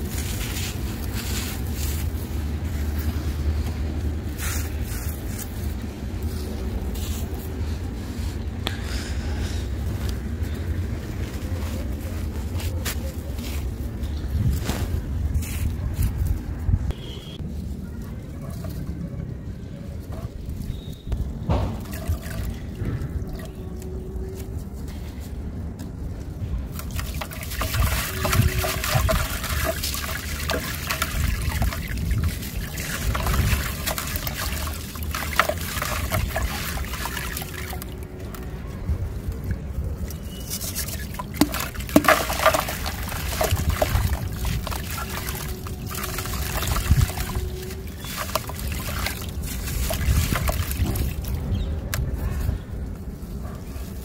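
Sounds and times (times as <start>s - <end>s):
soil crunching and crumbling: 0.0s - 9.1s, 20.1s - 54.0s
grains splashing into water: 40.8s - 51.4s.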